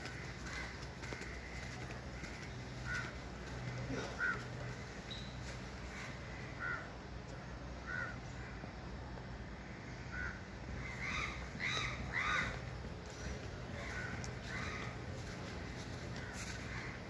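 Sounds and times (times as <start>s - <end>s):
crows cawing: 0.0s - 6.9s, 7.8s - 8.6s, 9.6s - 17.0s
steady low hum: 0.0s - 17.0s.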